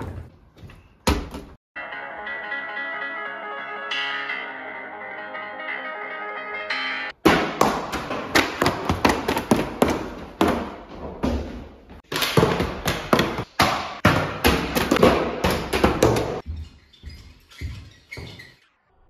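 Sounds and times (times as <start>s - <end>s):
plastic bottle bouncing down stairs: 7.2s - 16.4s.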